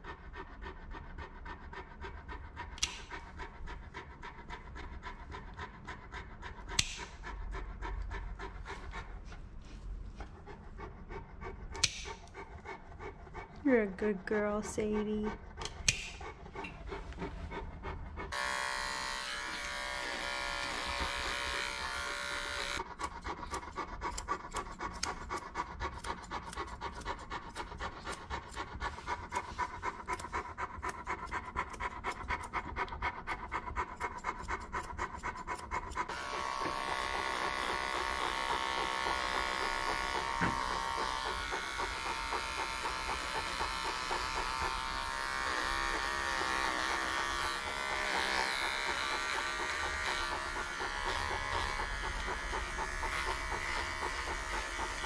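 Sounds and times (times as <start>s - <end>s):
dog panting: 0.0s - 55.0s
electric pet clipper buzzing: 18.3s - 25.2s, 34.8s - 55.0s.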